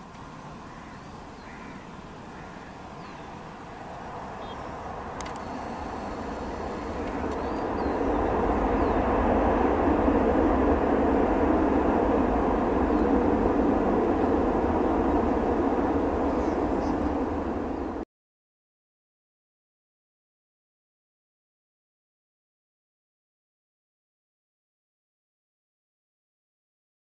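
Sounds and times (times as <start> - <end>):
jet engine rush: 0.0 - 18.0.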